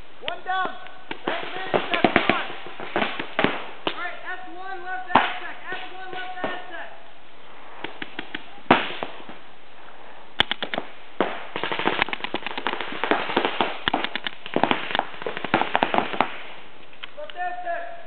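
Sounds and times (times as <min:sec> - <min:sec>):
paintball markers firing: 0:07.8 - 0:09.0, 0:10.4 - 0:16.4.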